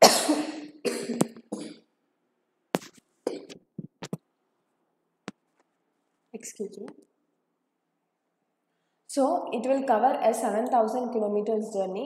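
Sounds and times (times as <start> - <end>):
woman clearing throat: 0.0 - 1.8, 3.3 - 3.6
woman coughing: 0.0 - 1.8, 3.3 - 3.6.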